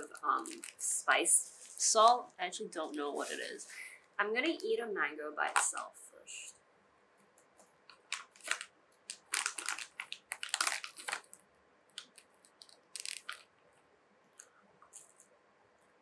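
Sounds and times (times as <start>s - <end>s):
plastic bag crinkling: 0.0s - 2.2s, 2.8s - 3.9s, 7.9s - 13.5s.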